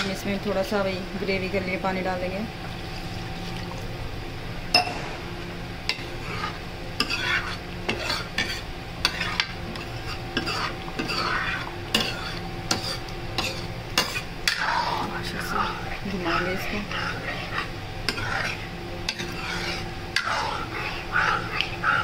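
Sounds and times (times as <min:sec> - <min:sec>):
gravy sizzling: 0:00.0 - 0:22.0
metal spoon scraping a pan: 0:05.9 - 0:22.0.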